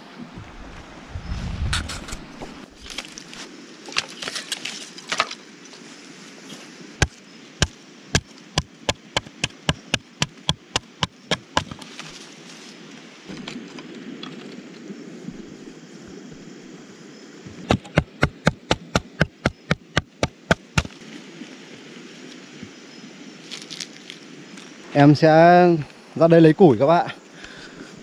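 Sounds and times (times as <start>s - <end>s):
chopping blows on wood: 7.0s - 11.9s, 17.5s - 21.0s.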